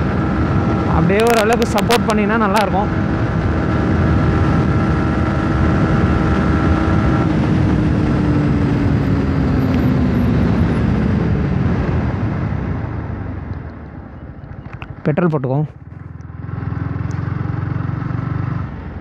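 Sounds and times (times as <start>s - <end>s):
wind rushing over microphone: 0.0s - 15.2s
motorcycle engine drone: 0.0s - 19.0s.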